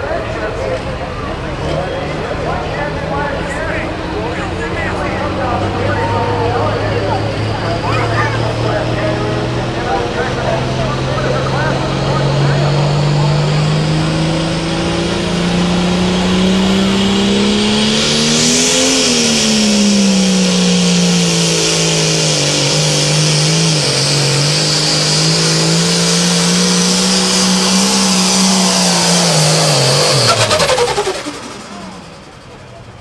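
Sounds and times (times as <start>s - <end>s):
tractor diesel engine at full power: 0.0s - 33.0s.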